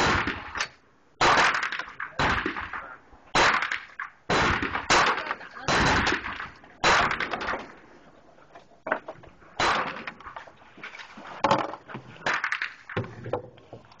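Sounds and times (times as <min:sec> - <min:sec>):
pistol shots echoing: 0:00.0 - 0:00.6, 0:01.2 - 0:07.7, 0:09.6 - 0:10.1.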